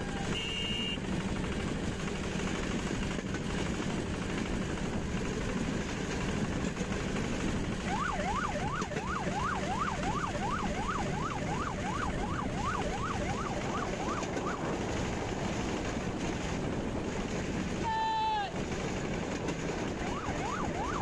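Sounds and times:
electronic siren warbling: 7.9 - 14.6.

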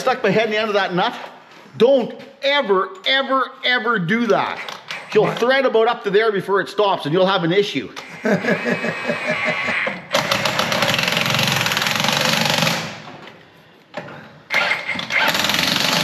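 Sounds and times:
impact wrench hammering: 10.1 - 13.1, 14.8 - 16.0.

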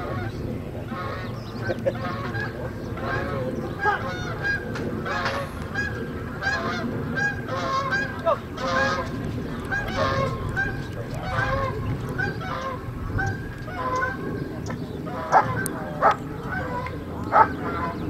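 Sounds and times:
geese honking: 0.0 - 18.0.

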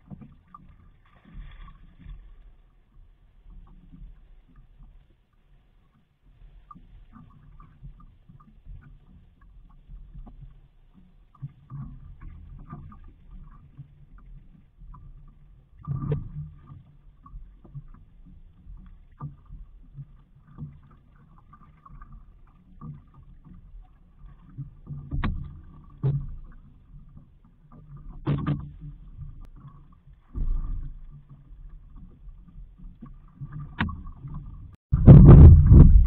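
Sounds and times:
water lapping against boat hull: 0.0 - 36.0
hollow knocks on boat: 24.4 - 26.8, 27.9 - 36.0
low rumble: 34.9 - 36.0.

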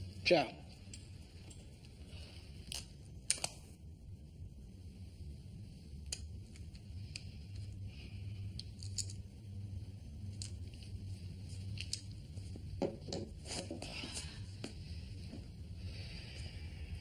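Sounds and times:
low steady hum: 0.0 - 17.0
objects being handled clicking: 2.6 - 3.7, 8.5 - 9.3, 10.3 - 11.0, 11.6 - 12.4.

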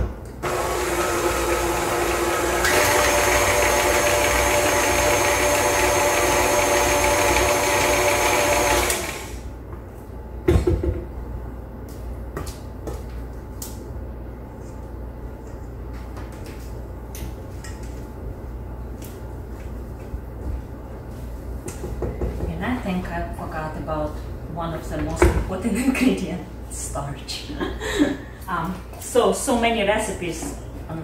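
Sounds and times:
stand mixer motor whining: 0.4 - 9.4.

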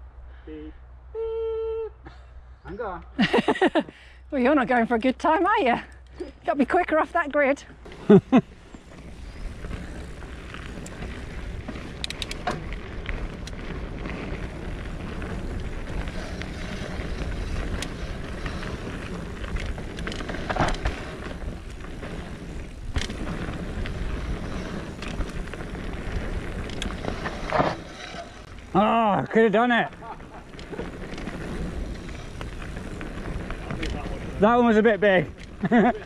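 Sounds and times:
tyre noise on dirt: 6.2 - 36.0
bike knocking and rattling: 7.8 - 36.0.

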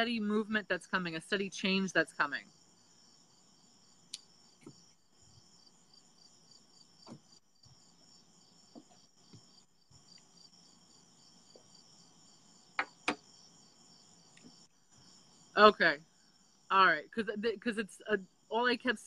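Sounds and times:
crickets chirping: 0.4 - 19.0
soft knocks and taps: 8.7 - 9.5.

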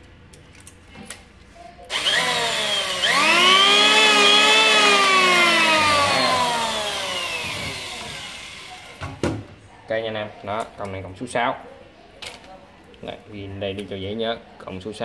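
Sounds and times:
electric planer motor whining: 1.9 - 8.9.

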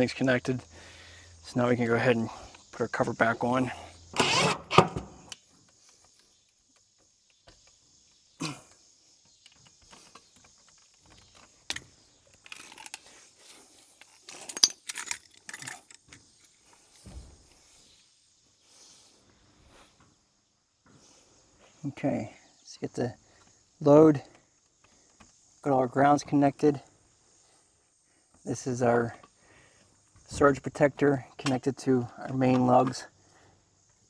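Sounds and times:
clicks and rattles of handled parts: 8.7 - 16.9, 29.1 - 33.1.

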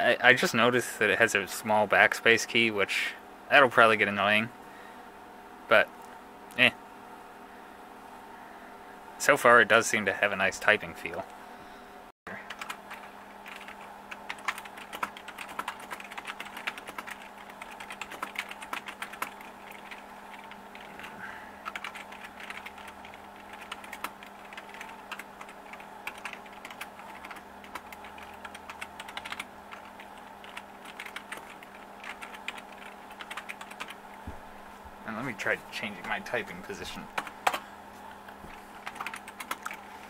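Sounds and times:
keyboard typing clicks: 21.6 - 34.0, 38.8 - 39.8.

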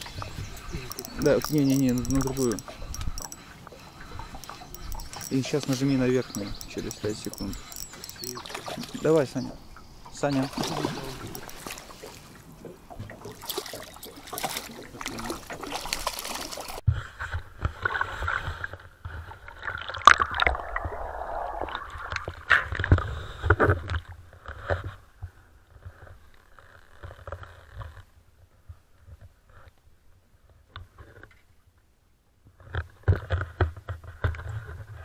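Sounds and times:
muffled underwater sloshing: 0.0 - 16.8
water splashing: 0.0 - 16.9.

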